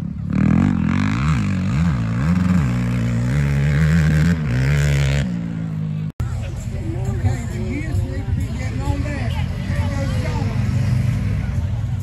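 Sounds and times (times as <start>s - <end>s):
quad engine revving: 0.0s - 6.0s.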